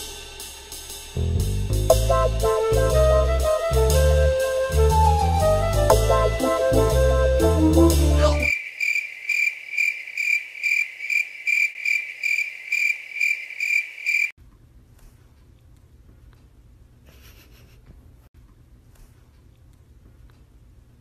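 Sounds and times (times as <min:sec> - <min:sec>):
brass background music: 0:01.3 - 0:08.5
crickets chirping: 0:08.4 - 0:14.4.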